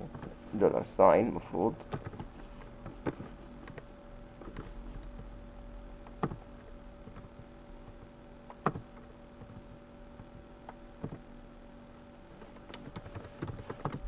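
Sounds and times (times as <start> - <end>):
faint steady hum: 0.0 - 14.0
keyboard keys pressed: 6.1 - 6.4.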